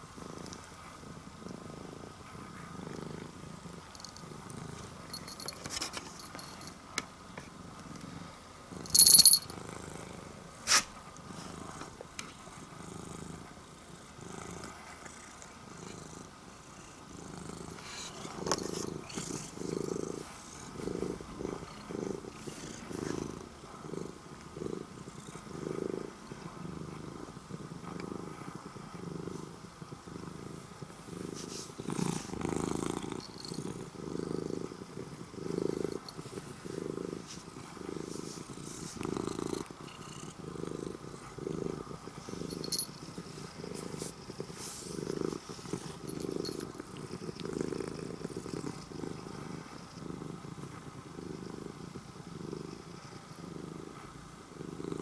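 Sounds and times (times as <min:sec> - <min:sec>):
cat purring: 0:00.0 - 0:55.0.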